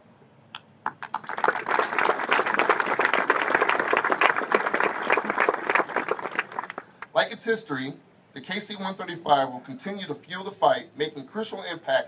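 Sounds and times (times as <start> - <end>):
audience applauding: 0.9 - 7.1.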